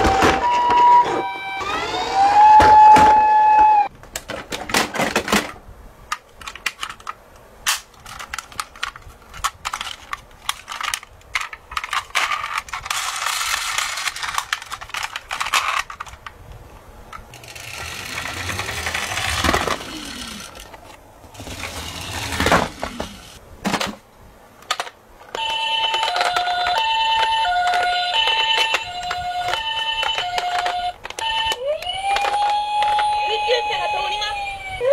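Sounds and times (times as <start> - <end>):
toy electronic siren: 0.0 - 3.9, 25.4 - 34.9
plastic toy cars clattering: 4.1 - 16.4, 17.1 - 33.6.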